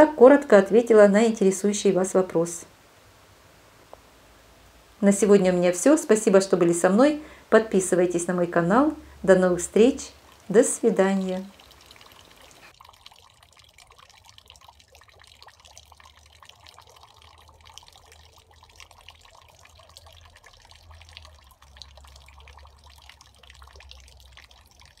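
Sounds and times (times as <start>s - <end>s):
water dripping and pattering: 5.0s - 25.0s.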